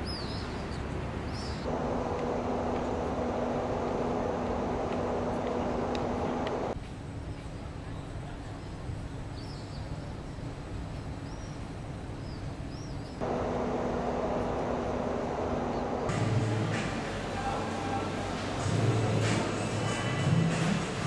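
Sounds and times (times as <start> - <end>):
birds chirping: 0.0 - 6.8, 11.0 - 16.1
steady rumble: 1.6 - 6.8, 13.2 - 21.0
low hum: 1.7 - 6.8, 13.2 - 20.4.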